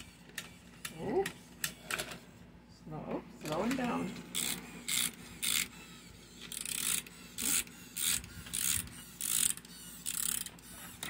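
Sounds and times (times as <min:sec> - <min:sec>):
clockwork ratchet clicking: 0:04.3 - 0:05.8, 0:06.4 - 0:11.0.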